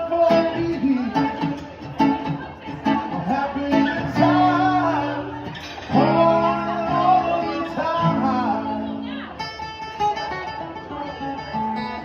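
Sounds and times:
man singing: 0.0 - 1.7, 2.8 - 9.1
acoustic guitar strumming: 0.0 - 12.0.

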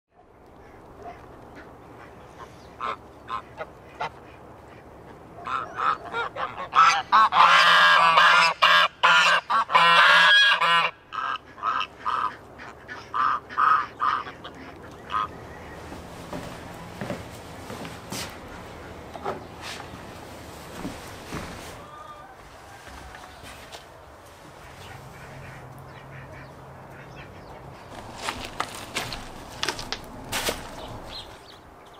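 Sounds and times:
geese honking: 0.5 - 17.1, 21.3 - 29.9.

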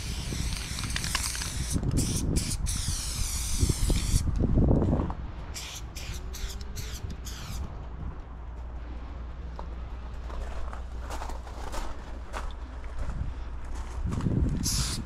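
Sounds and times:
spray paint can hissing: 0.0 - 4.3, 5.6 - 7.6, 14.6 - 15.0
steady low rumble: 0.0 - 15.0.

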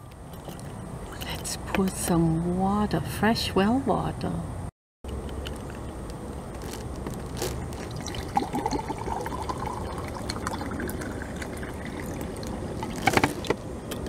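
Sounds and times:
water pouring into a glass: 7.6 - 13.0.

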